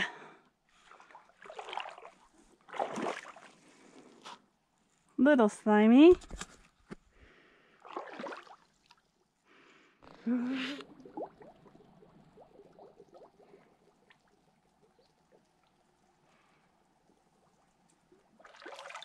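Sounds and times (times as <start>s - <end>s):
foot sloshing in water: 0.8s - 3.9s, 7.8s - 9.1s, 18.3s - 19.0s
bubbles gurgling from mud: 10.1s - 15.2s.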